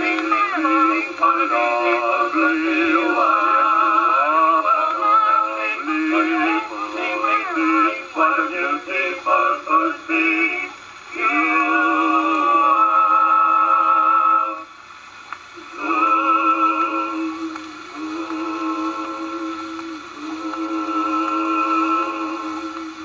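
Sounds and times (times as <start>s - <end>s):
male vocal quartet on phonograph: 0.0s - 15.0s, 15.6s - 23.0s.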